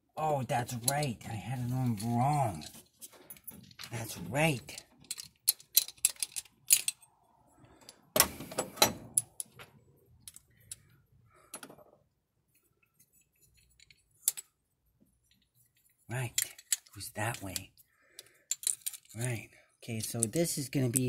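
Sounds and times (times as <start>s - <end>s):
small metal parts clinking: 0.7s - 8.0s, 9.1s - 9.6s, 10.2s - 11.7s, 12.8s - 19.4s.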